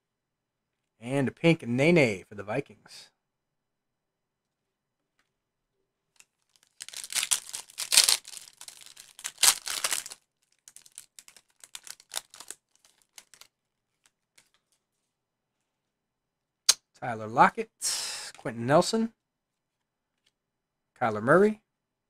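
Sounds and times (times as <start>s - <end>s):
foil wrapper tearing and crinkling: 6.2s - 14.5s.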